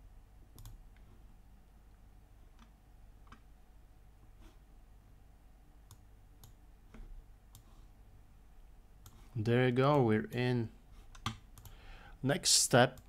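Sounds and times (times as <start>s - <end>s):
computer mouse clicks: 0.5s - 1.1s, 5.8s - 7.7s, 11.1s - 11.8s.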